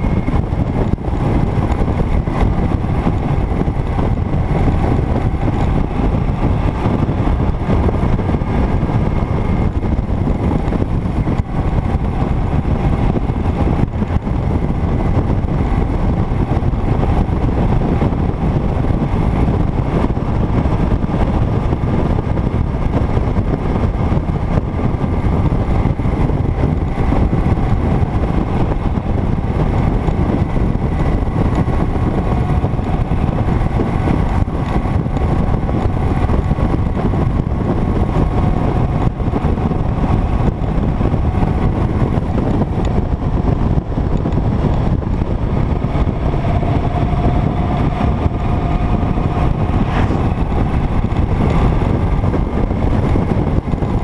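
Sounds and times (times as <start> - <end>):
motorcycle engine hum: 0.0 - 54.0
wind rushing across microphone: 0.0 - 54.0.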